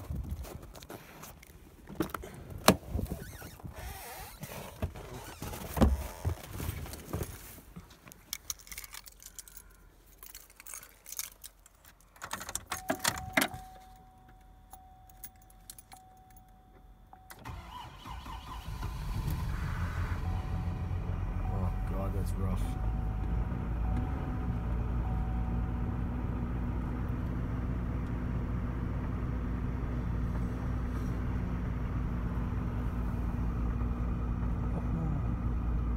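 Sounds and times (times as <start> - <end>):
car keys jangling: 8.1 - 17.7.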